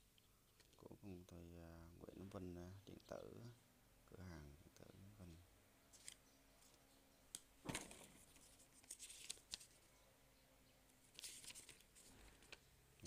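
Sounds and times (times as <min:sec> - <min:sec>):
paper rustling and crinkling: 0:05.9 - 0:06.8, 0:07.6 - 0:09.9, 0:11.0 - 0:12.6.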